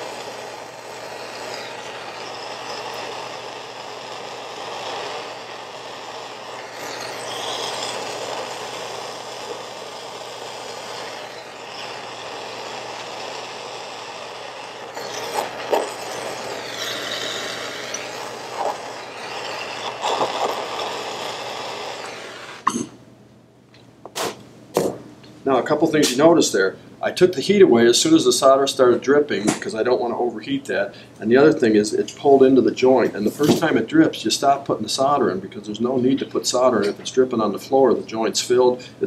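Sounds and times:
torch flame hissing: 0:00.0 - 0:22.8.

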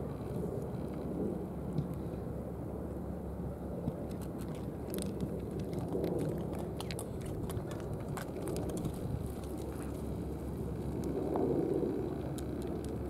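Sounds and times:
low background rumble: 0:00.0 - 0:13.0
cats chewing food: 0:03.8 - 0:13.0.

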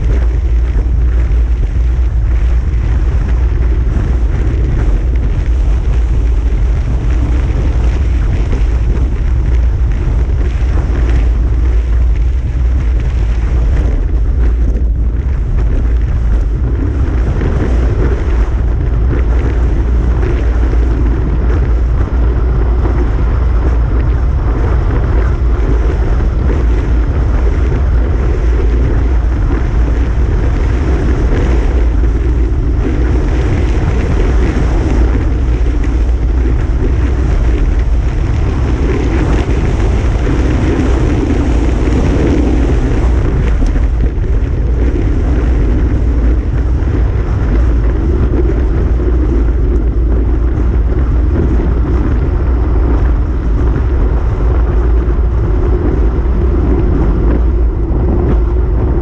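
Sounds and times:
wind rumble on microphone: 0:00.0 - 0:59.0.

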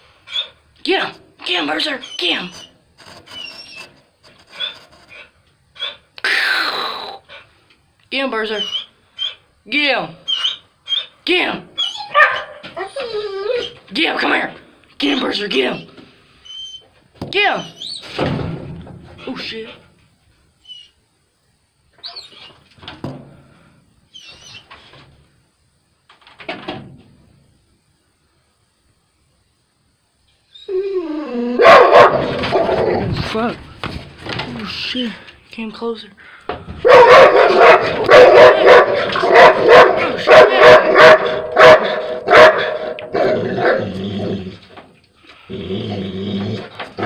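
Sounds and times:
dog barking: 0:12.1 - 0:12.6, 0:31.6 - 0:32.5, 0:36.8 - 0:43.8.

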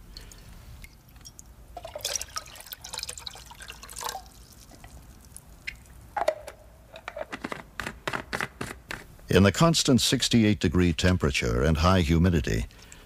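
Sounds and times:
water dripping: 0:00.0 - 0:06.1.

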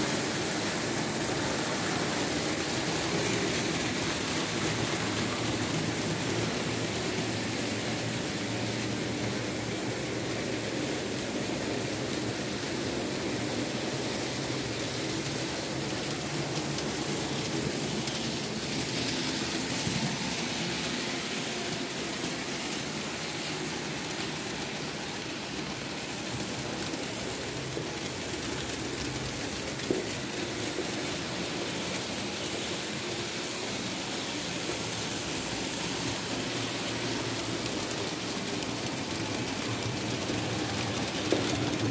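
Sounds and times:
model train motor hum: 0:00.0 - 0:41.9.

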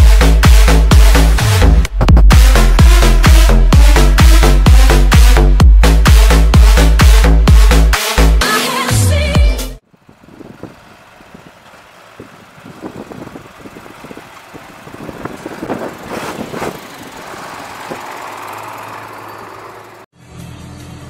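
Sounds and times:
tractor engine running: 0:09.8 - 0:20.1
trailer knocking and rattling: 0:10.0 - 0:20.0.

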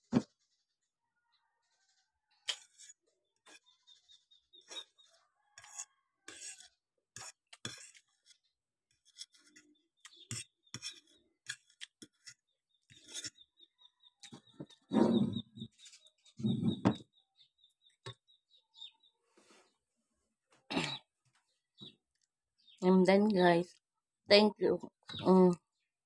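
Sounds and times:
spoon scraping ceramic plate: 0:05.6 - 0:13.4, 0:14.2 - 0:17.0
low muffled noises: 0:14.8 - 0:15.7, 0:16.4 - 0:17.0.

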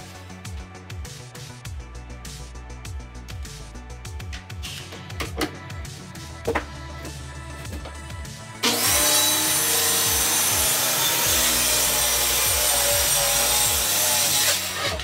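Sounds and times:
circular saw cutting plywood: 0:08.6 - 0:15.0.

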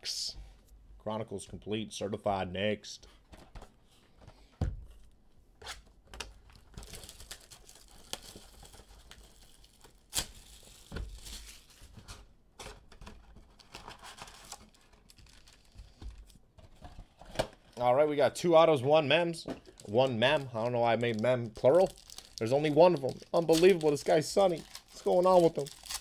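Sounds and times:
plastic wrap crinkling and tearing: 0:06.2 - 0:12.2, 0:13.3 - 0:16.4, 0:19.6 - 0:26.0.

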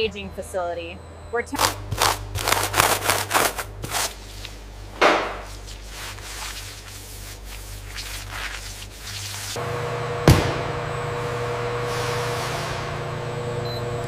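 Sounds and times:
low machine hum: 0:00.0 - 0:14.0
bristle brush scraping cheese rind: 0:01.9 - 0:04.4
cloth rubbing: 0:01.9 - 0:04.8, 0:05.4 - 0:09.6.

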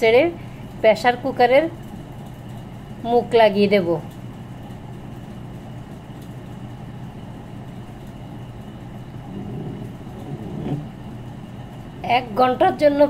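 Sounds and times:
low rumbling hum: 0:00.0 - 0:13.0.

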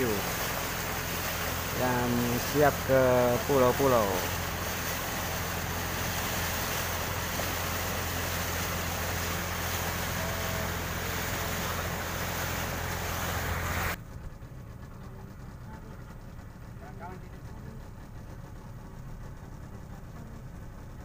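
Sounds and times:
water rushing past hull: 0:00.0 - 0:14.0
outboard motor running: 0:00.0 - 0:21.0.

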